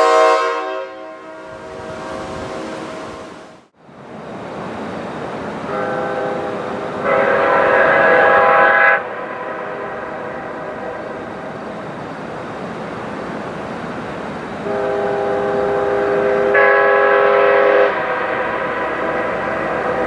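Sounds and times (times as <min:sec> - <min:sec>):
horn echo off mountains: 0:00.0 - 0:03.6, 0:05.7 - 0:11.2, 0:14.6 - 0:20.0
train horn chord: 0:00.0 - 0:03.7, 0:05.7 - 0:11.5, 0:14.6 - 0:20.0.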